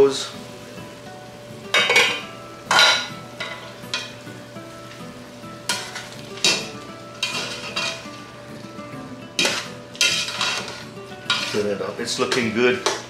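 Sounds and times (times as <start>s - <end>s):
faint sizzle from pot: 0.0s - 13.0s
utensil scraping in a pot: 5.7s - 8.3s, 9.3s - 13.0s.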